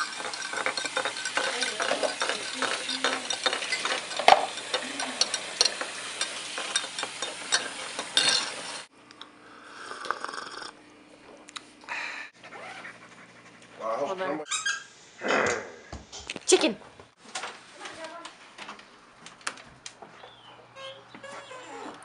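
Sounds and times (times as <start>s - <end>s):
kitchen objects clicking and rattling: 0.0s - 8.9s.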